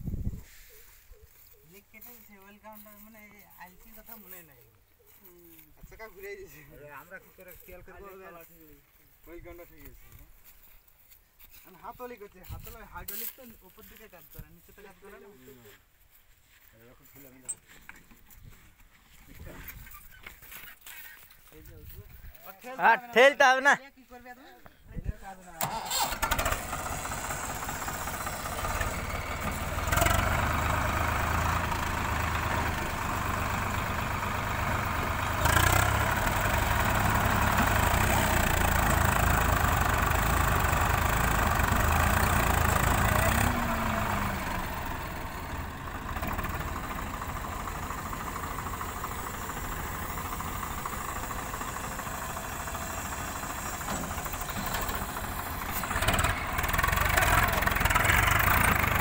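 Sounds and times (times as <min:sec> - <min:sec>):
diesel tractor engines under load: 0:17.0 - 0:23.6, 0:25.4 - 0:59.0.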